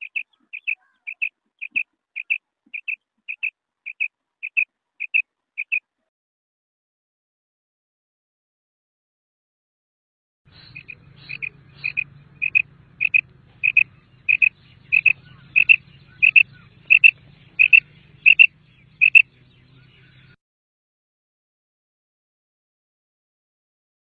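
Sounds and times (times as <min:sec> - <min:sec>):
quail calling: 0:00.0 - 0:05.8, 0:10.5 - 0:20.4
faint low hum: 0:10.5 - 0:20.4.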